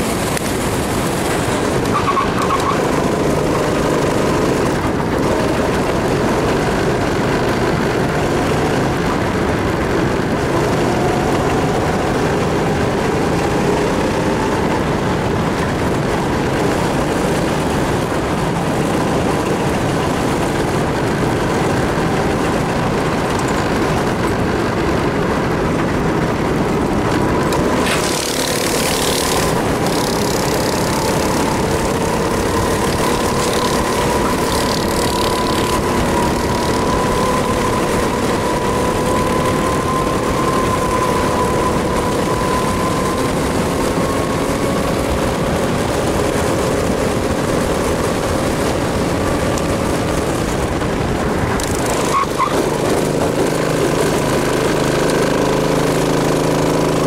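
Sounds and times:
go-kart engine running: 0.0 - 57.0
wind on microphone: 0.0 - 57.0.

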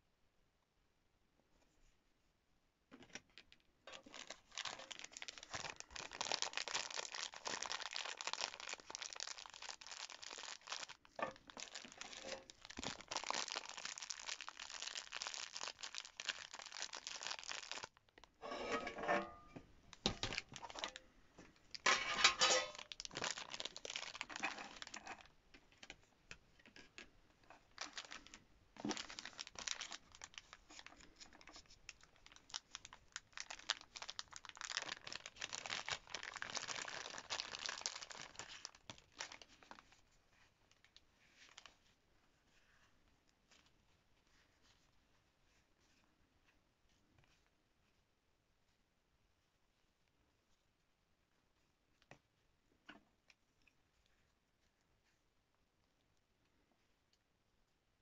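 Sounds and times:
plastic bags crinkling: 3.9 - 18.3, 19.9 - 21.0, 21.7 - 25.3, 27.7 - 40.0, 40.7 - 41.8.

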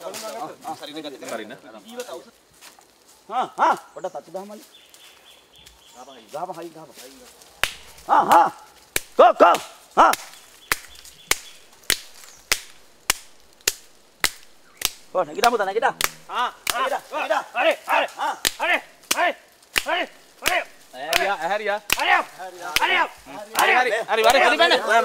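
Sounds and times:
rhythmic pitched calls: 7.5 - 25.0
hand slaps on elephant hide: 7.6 - 17.0, 18.4 - 24.4.

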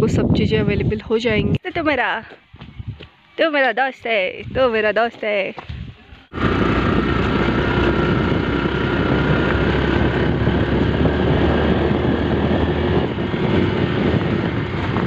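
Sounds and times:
wind rushing over microphone: 0.0 - 3.1, 4.3 - 4.9, 5.6 - 15.0
motorcycle engine running: 6.4 - 15.0.

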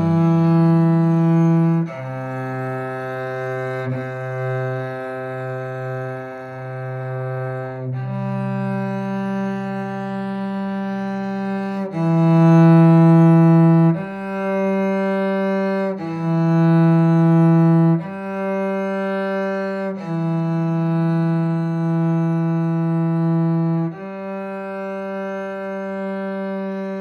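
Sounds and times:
cello bowed in long notes: 0.0 - 27.0.

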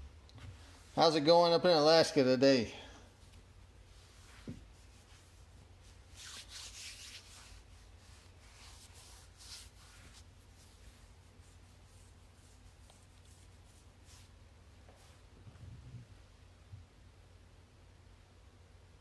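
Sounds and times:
objects rubbing and brushing: 3.2 - 16.0.

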